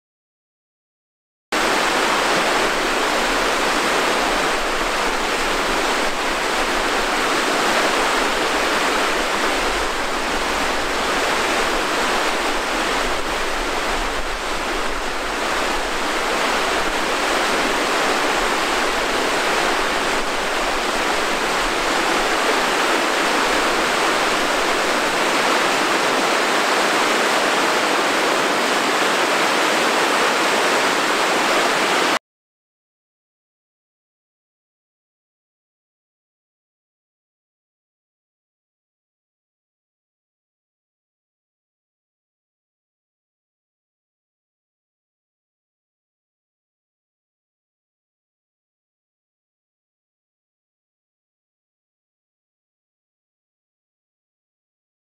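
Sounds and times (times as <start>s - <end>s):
river rushing over rocks: 1.6s - 32.2s.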